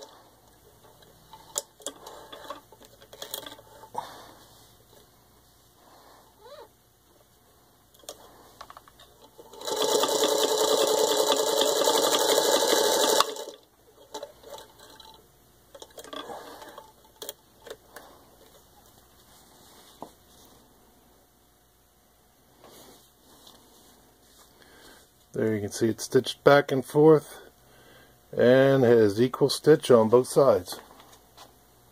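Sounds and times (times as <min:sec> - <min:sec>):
sewing machine clattering: 0:09.2 - 0:15.2.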